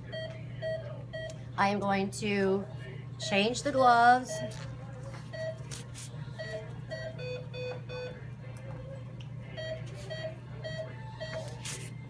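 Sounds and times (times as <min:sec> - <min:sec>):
patient monitor beeps: 0:00.0 - 0:01.4, 0:04.2 - 0:04.7, 0:05.3 - 0:05.6, 0:06.4 - 0:08.2, 0:09.5 - 0:11.6.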